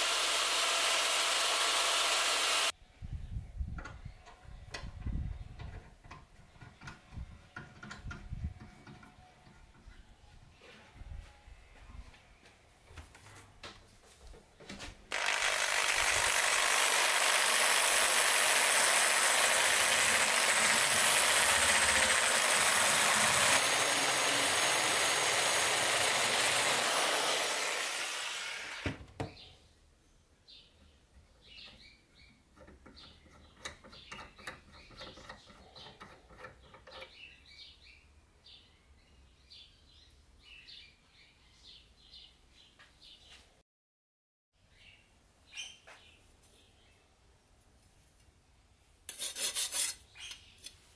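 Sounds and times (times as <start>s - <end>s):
rotary wire brush on steel: 49.1s - 50.4s.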